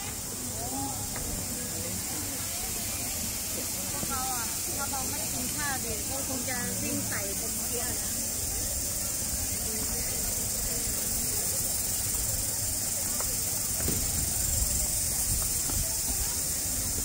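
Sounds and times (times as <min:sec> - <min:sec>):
faint people chatting: 0:00.0 - 0:17.0
high-pitched insect chorus: 0:00.0 - 0:17.0.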